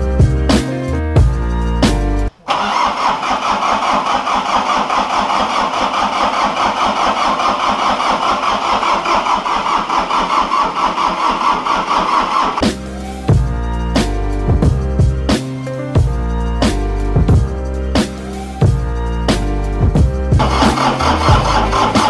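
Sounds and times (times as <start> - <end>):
diesel engine turning over: 2.5 - 12.7, 20.4 - 22.0.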